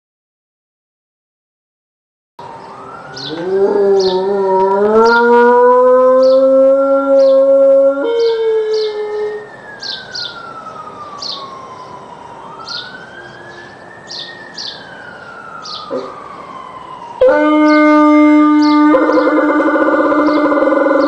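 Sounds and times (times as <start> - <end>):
siren wailing: 2.4 - 21.0
dog howling: 3.2 - 9.4, 15.9 - 16.2, 17.2 - 21.0
dog low call: 3.2 - 9.4, 15.9 - 16.2.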